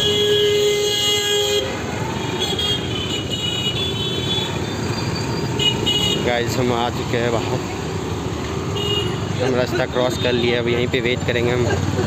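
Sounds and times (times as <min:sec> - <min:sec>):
vehicle horn: 0:00.0 - 0:04.6, 0:05.5 - 0:06.3, 0:08.8 - 0:09.4
busy street traffic: 0:00.0 - 0:12.0.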